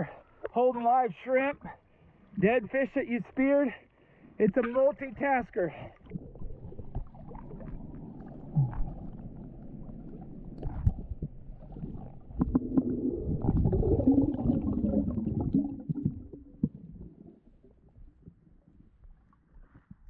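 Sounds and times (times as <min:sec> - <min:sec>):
water sloshing and splashing: 0:04.0 - 0:18.5
muffled underwater rumbling: 0:05.8 - 0:20.0.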